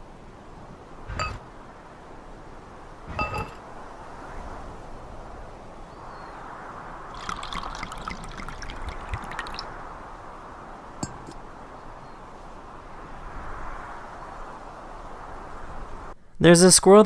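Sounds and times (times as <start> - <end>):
glass clinking on stone: 3.2 - 3.6
wine pouring into glass: 7.1 - 9.7.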